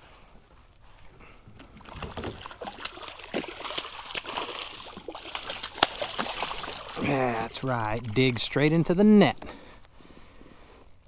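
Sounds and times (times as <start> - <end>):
fish splashing in water: 1.6 - 8.1.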